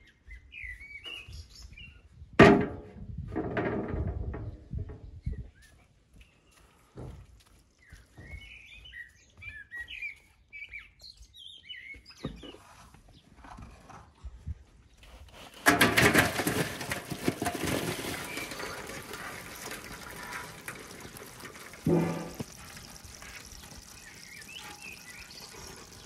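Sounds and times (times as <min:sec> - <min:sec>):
small birds chirping: 0:00.0 - 0:02.2, 0:05.0 - 0:14.2, 0:19.5 - 0:26.0
crayfish clattering in metal tub: 0:15.6 - 0:26.0.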